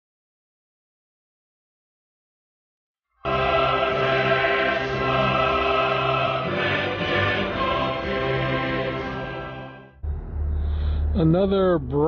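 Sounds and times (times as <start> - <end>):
choir singing held chords: 3.2 - 10.0.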